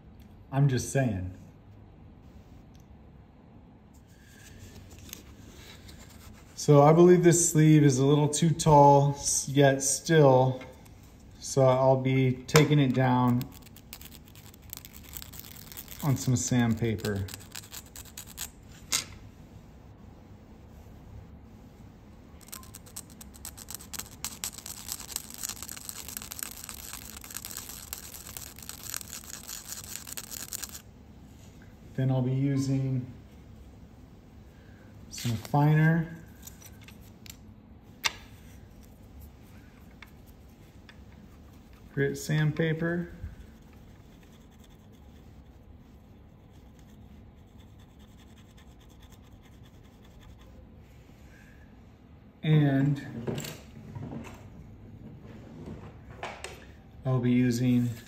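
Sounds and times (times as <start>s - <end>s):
metal rubbed on sandpaper: 13.2s - 18.6s, 22.4s - 30.8s, 43.6s - 50.6s.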